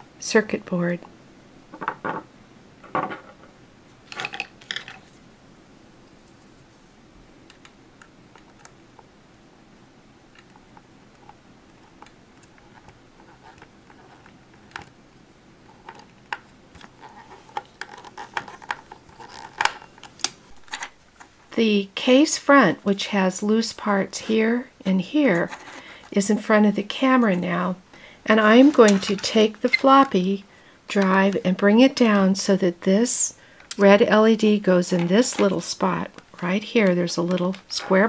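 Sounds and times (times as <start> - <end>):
handling noises: 15.6 - 21.6, 28.3 - 30.2, 34.7 - 38.0.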